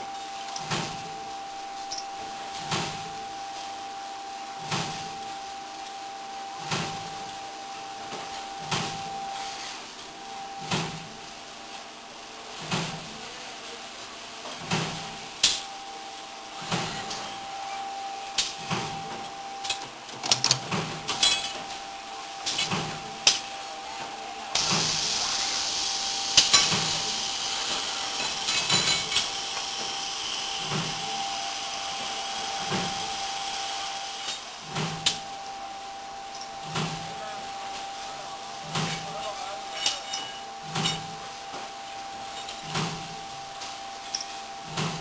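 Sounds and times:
steady machine whine: 0:00.0 - 0:45.0
steady hiss: 0:21.7 - 0:45.0.

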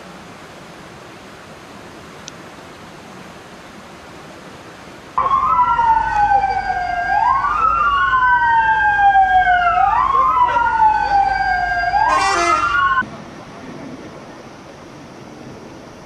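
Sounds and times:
fire engine sirens wailing: 0:05.2 - 0:13.0.

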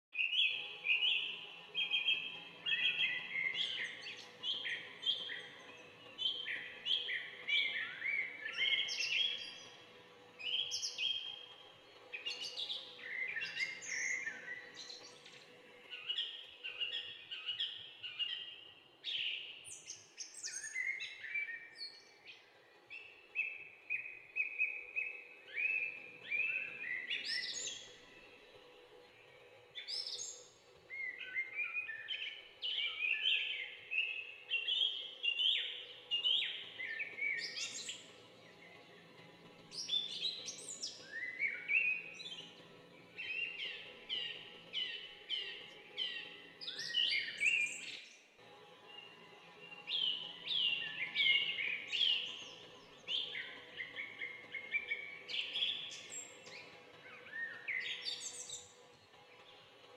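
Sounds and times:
bird chirping: 0:48.9 - 0:58.8.

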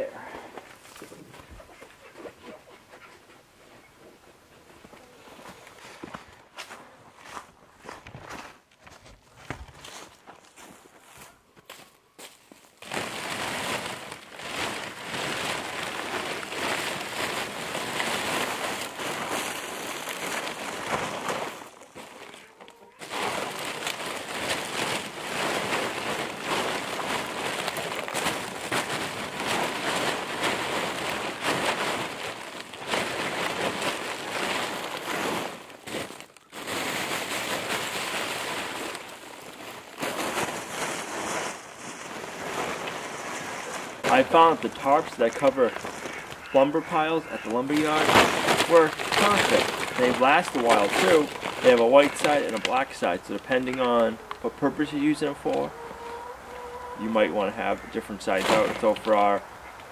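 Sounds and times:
plastic tarp rustling and crackling: 0:12.5 - 0:56.0, 0:56.8 - 0:59.9.

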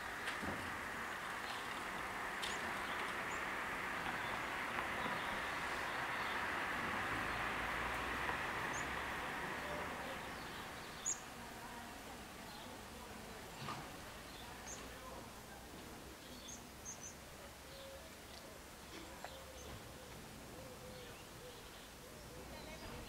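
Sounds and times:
passing train rushing: 0:00.6 - 0:10.8.

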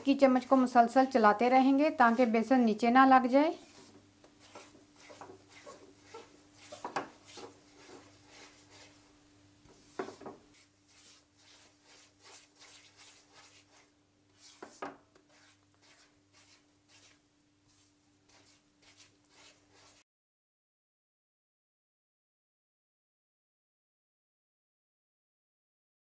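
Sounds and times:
faint steady hum: 0:00.0 - 0:19.9
metal spatula scraping a wok: 0:03.6 - 0:09.0.

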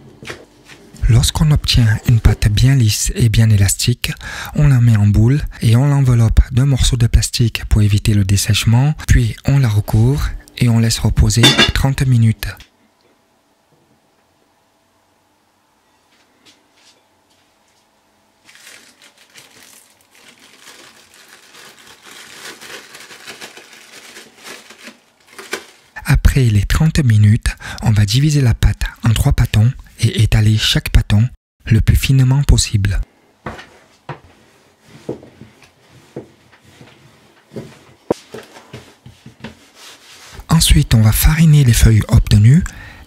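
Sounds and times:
cling film crinkling: 0:18.4 - 0:26.0
hands working pasta dough: 0:33.4 - 0:40.5.

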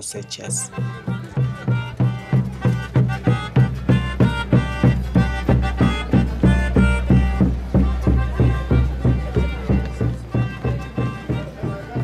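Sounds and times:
folk band music: 0:00.0 - 0:12.0
bass drum beating: 0:00.5 - 0:12.0.

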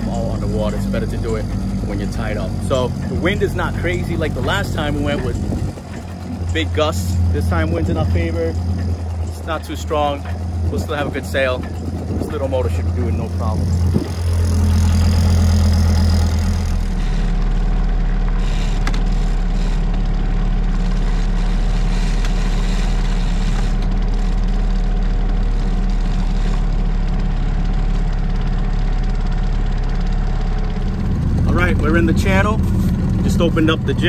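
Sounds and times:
outboard motor running: 0:00.0 - 0:34.0.

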